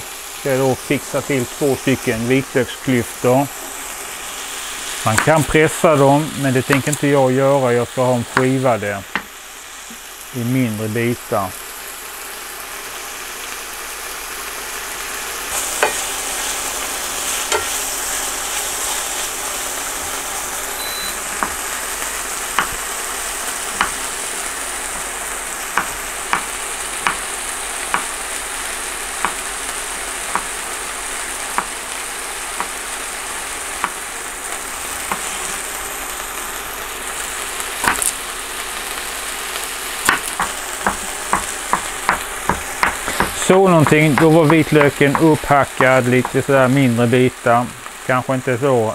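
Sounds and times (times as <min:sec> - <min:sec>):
chicken sizzling in pan: 0:00.0 - 0:48.9
knife knocking on cutting board: 0:22.6 - 0:22.8.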